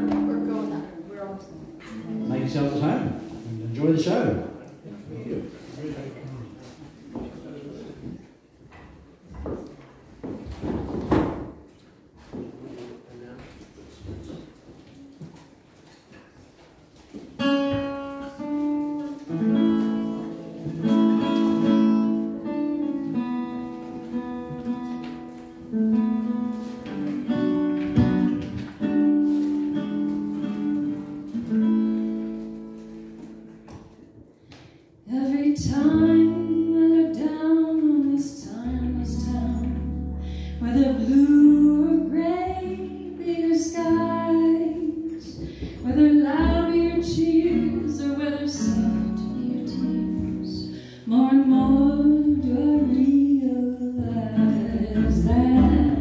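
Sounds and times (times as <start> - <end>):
acoustic guitar plucked chords: 0.0 - 4.5, 17.4 - 34.1, 38.6 - 56.0
double bass: 17.4 - 33.7, 35.4 - 56.0
woman singing: 35.1 - 56.0.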